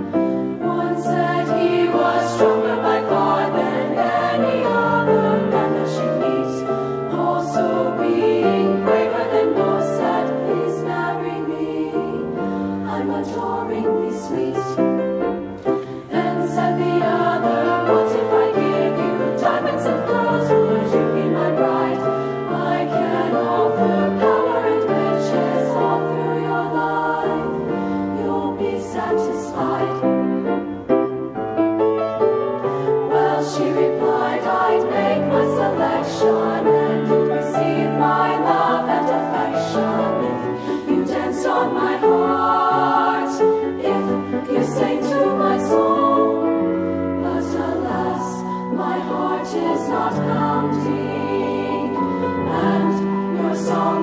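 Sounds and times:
women's choir singing: 0.0s - 30.7s, 32.6s - 54.0s.

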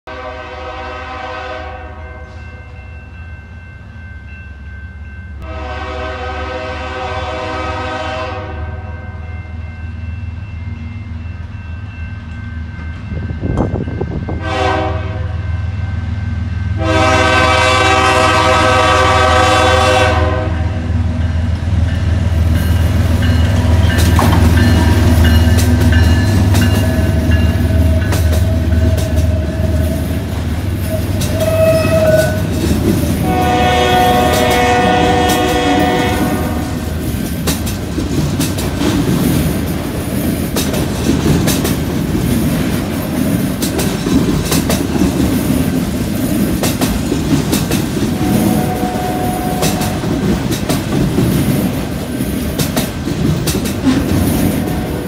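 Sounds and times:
locomotive air horn blasts: 0.1s - 2.4s, 5.4s - 9.1s, 14.3s - 15.5s, 16.8s - 21.0s, 30.9s - 32.6s, 33.2s - 36.9s, 48.2s - 50.1s, 54.6s - 55.0s
train wheels clattering over rails: 21.8s - 55.0s.

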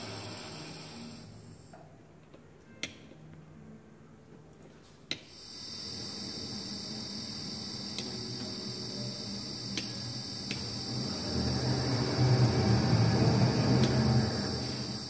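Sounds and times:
electric motor hum and whine: 5.3s - 15.0s
sharp clicks of buttons and relays: 7.7s - 11.0s.

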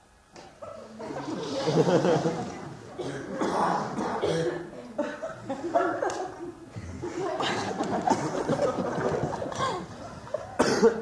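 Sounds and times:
audience laughing: 0.8s - 3.4s, 4.9s - 10.6s.

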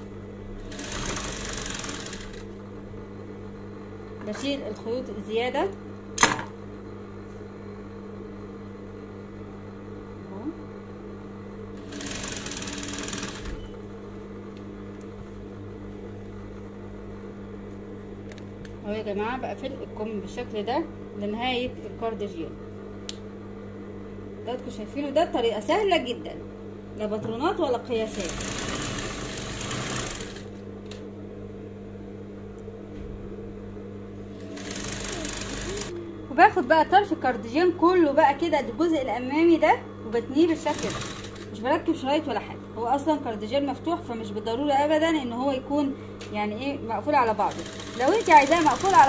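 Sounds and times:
steady low hum: 0.0s - 49.0s
sewing machine needle chatter: 0.6s - 2.5s, 11.8s - 13.8s, 28.0s - 30.5s, 34.4s - 36.0s, 40.5s - 41.6s, 47.3s - 49.0s.

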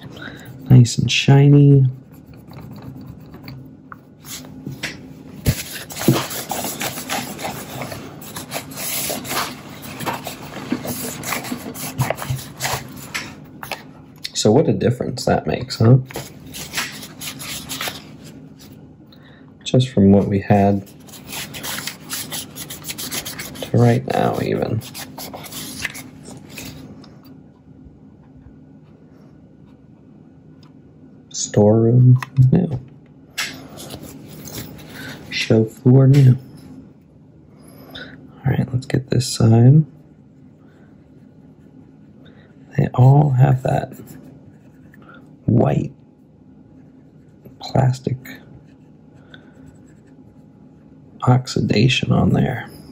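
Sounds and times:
faint low hum: 0.0s - 52.9s
scratchy rubbing on plastic: 1.9s - 3.6s, 5.5s - 13.3s, 20.8s - 26.9s.

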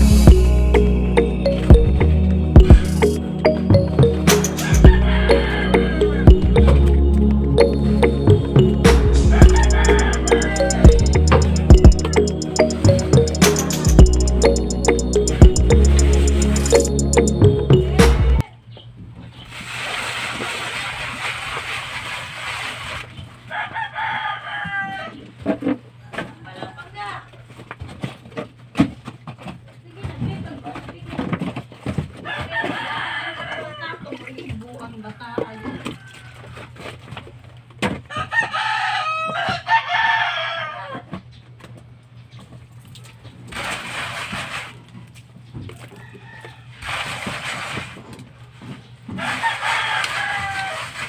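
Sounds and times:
rooster crowing: 4.5s - 6.4s, 9.3s - 11.0s, 23.5s - 25.2s, 32.3s - 33.9s, 38.1s - 41.1s, 49.2s - 51.0s.

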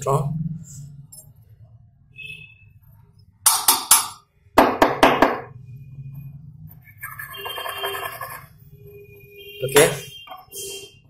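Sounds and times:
ringing tone: 6.9s - 9.1s.

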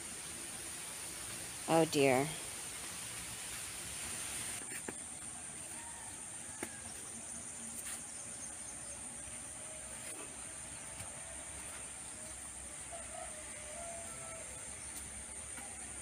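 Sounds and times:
insects chorus: 3.5s - 16.0s.

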